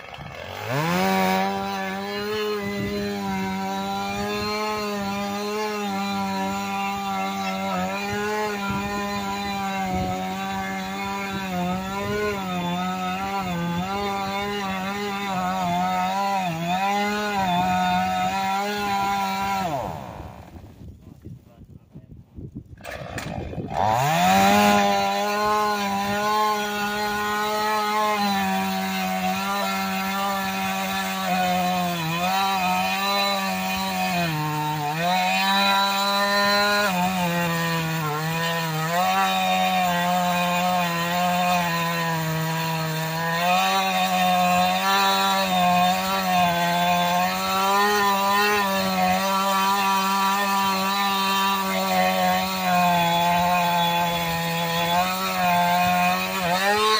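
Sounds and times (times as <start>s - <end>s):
chainsaw cutting log: 0.0s - 20.9s, 22.6s - 56.9s.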